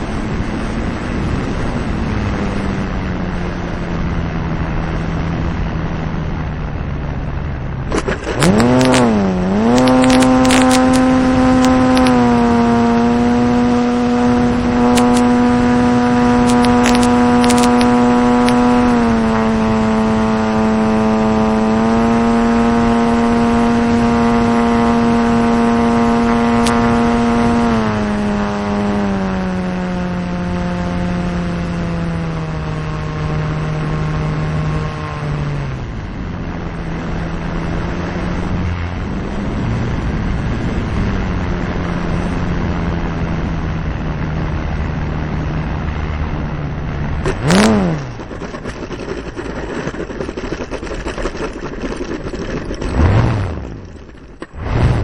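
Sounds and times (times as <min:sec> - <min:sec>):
wheels rolling on runway: 0:00.0 - 0:55.0
model plane motor droning: 0:07.9 - 0:43.7, 0:44.6 - 0:55.0
plane touching down bump: 0:47.0 - 0:55.0.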